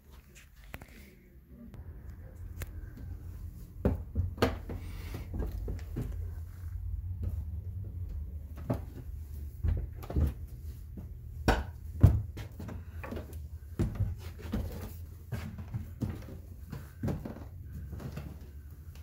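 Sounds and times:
steady low rumble: 1.6 - 12.0.

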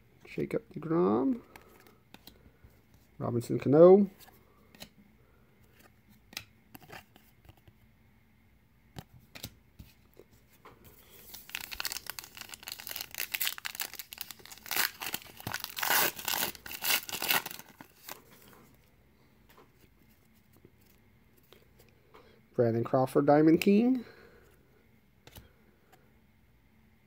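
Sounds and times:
card pack wrapper crinkling: 11.0 - 18.5.

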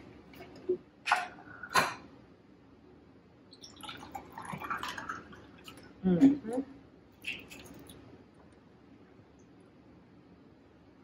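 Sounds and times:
drink poured over ice: 3.6 - 5.8, 7.2 - 8.0.

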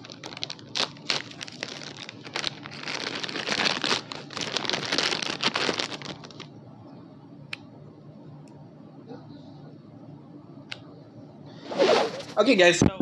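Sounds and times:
plastic packaging crinkling: 0.0 - 6.5.

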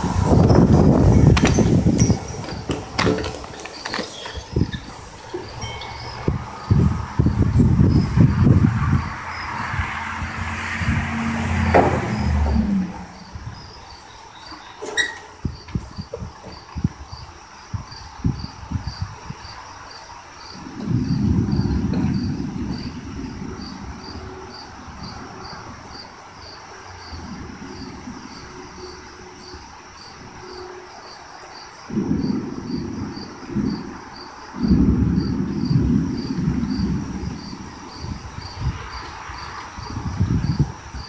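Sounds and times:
deep rumbling: 0.0 - 14.6, 20.5 - 26.1, 31.9 - 41.0
crickets chirping: 0.0 - 41.0.

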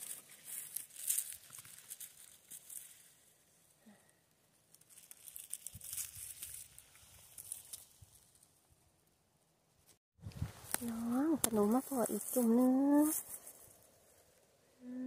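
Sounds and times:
moss and leaves crackling under hand: 0.0 - 3.7, 4.6 - 8.6, 10.4 - 14.5.

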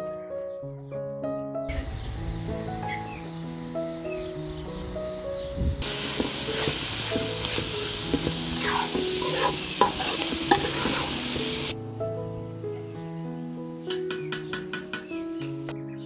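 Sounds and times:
herbs sizzling in oil: 1.8 - 11.8
metal spoon scraping pan: 6.2 - 11.7.

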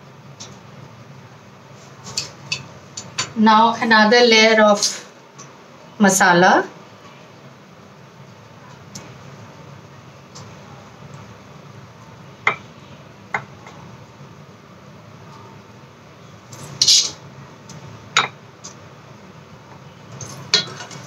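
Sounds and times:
low steady background noise: 0.0 - 21.0
utensils clinking on glass dish: 16.5 - 17.2, 20.2 - 21.0.

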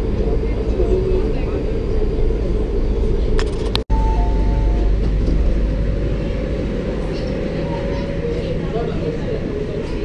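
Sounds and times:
metro train rumbling: 0.0 - 10.0
two-note electronic tone: 3.9 - 5.0.

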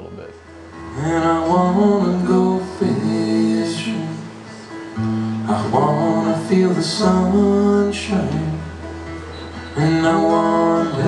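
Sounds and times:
man singing: 0.9 - 4.5, 5.5 - 8.9, 9.7 - 11.0.

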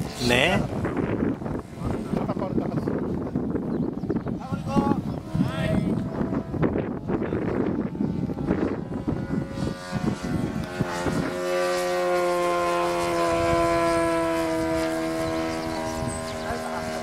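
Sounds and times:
model plane engine flying past: 0.0 - 17.0
wind buffeting microphone: 0.0 - 17.0.

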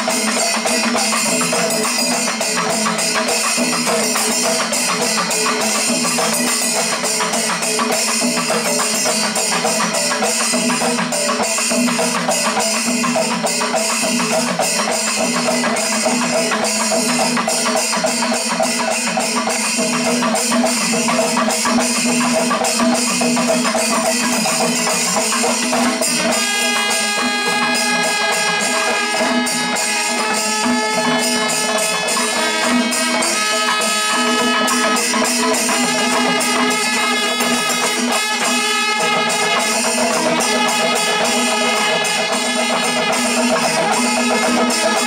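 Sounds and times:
drums and cymbals striking: 0.0 - 45.0
horns long held notes: 26.3 - 45.0.

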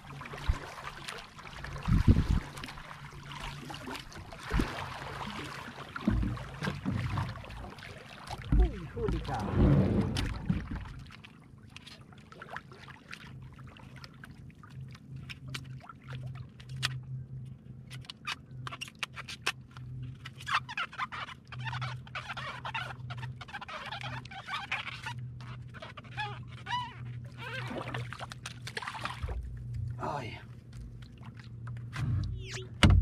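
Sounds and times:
styrofoam squeaking and crackling: 20.4 - 27.7
steady low hum: 27.7 - 33.0.

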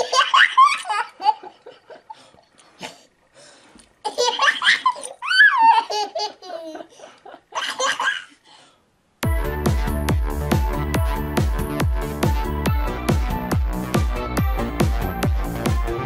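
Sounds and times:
baby laughing: 0.0 - 2.1, 4.0 - 8.4
electronic music with a beat: 9.2 - 16.0.

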